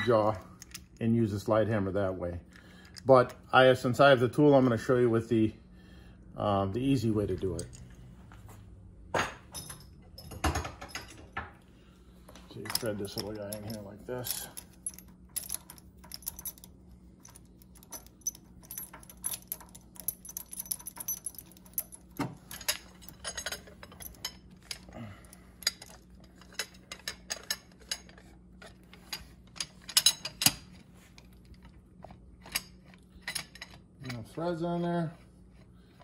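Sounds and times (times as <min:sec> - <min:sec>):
metal chain clinking: 0:09.5 - 0:11.4, 0:12.4 - 0:31.8, 0:32.4 - 0:34.4
metal clanks: 0:12.3 - 0:30.7.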